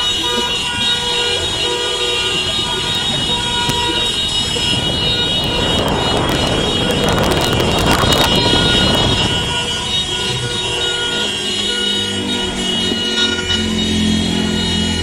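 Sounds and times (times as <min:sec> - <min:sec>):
city street noise: 0:00.0 - 0:15.0
vehicle horns: 0:00.0 - 0:15.0
rush of noise: 0:03.1 - 0:09.8.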